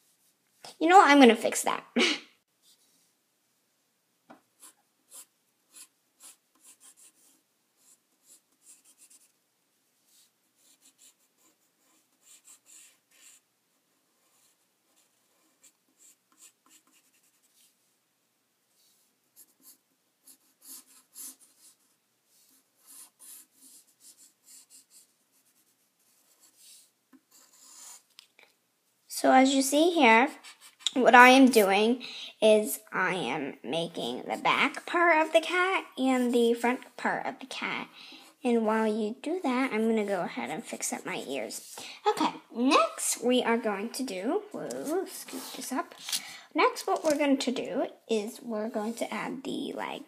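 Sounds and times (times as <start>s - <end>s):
pencil scratching on paper: 4.6s - 9.4s, 10.1s - 17.8s, 18.8s - 28.1s, 30.2s - 31.8s, 34.1s - 37.0s, 44.5s - 46.2s.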